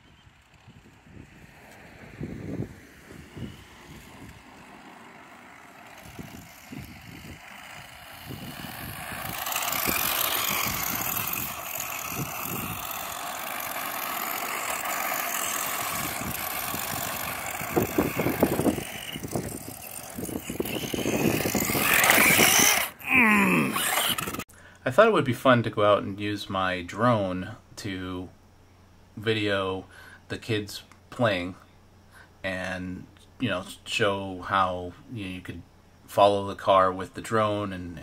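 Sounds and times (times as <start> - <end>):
remote-control truck motor whirring: 0.0 - 24.5
tyres hissing on asphalt: 1.0 - 20.7.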